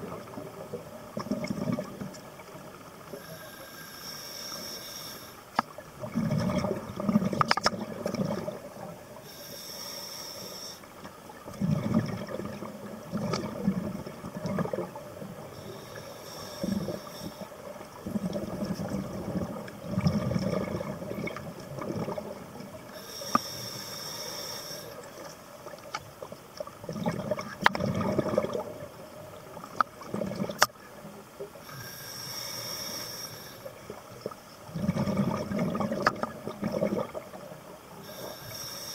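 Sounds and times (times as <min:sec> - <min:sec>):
exhaled air bubbling: 0:00.0 - 0:03.6, 0:05.6 - 0:09.2, 0:11.3 - 0:23.4, 0:24.5 - 0:30.8, 0:33.7 - 0:38.7
regulator inhale hiss: 0:03.1 - 0:05.6, 0:09.2 - 0:11.1, 0:15.4 - 0:17.8, 0:22.9 - 0:25.3, 0:31.6 - 0:33.9, 0:37.9 - 0:38.9.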